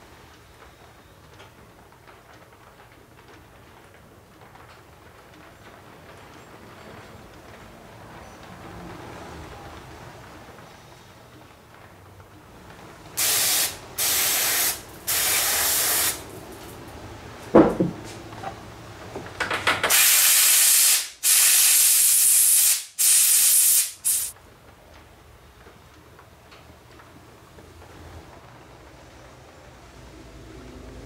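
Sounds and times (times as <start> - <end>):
compressed air blasts: 13.2 - 16.3, 19.8 - 24.3.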